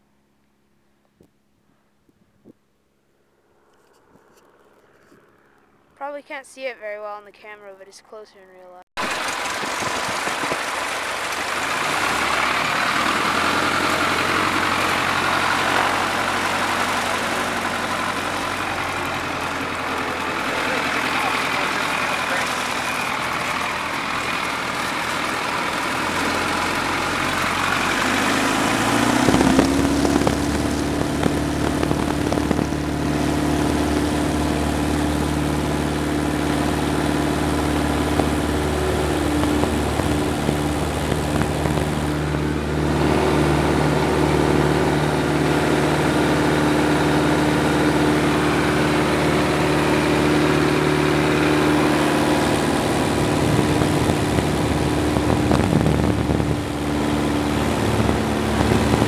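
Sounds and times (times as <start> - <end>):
airplane engine and propeller: 2.4 - 7.6, 9.0 - 59.0.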